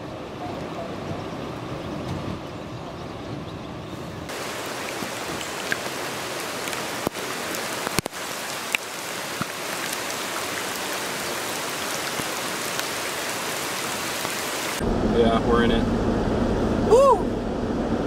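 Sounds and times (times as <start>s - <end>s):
heavy rain pouring: 4.2s - 17.2s
raindrops ticking nearby: 4.3s - 14.8s.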